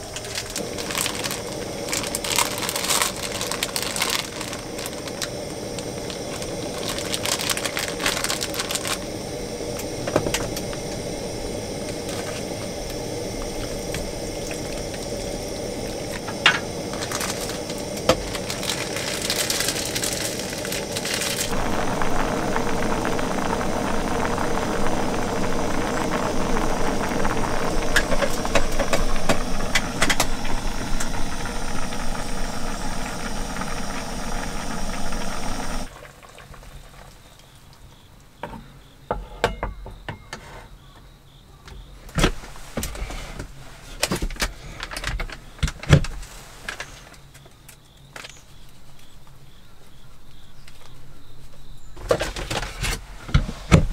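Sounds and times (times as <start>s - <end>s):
gas stove burner hiss: 0.0s - 36.0s
water bubbling: 0.0s - 36.4s.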